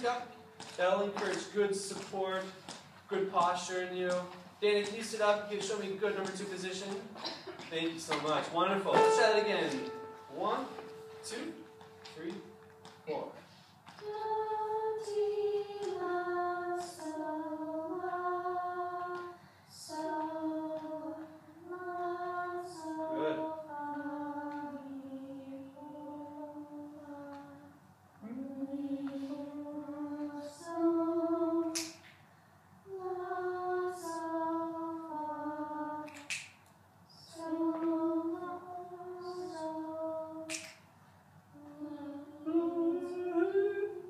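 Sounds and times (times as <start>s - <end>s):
choir singing in unison: 14.0s - 27.6s, 28.4s - 31.9s, 32.9s - 36.2s, 37.3s - 40.5s, 41.6s - 44.0s
finger snaps: 31.7s - 32.2s, 36.0s - 36.8s, 40.5s - 40.8s.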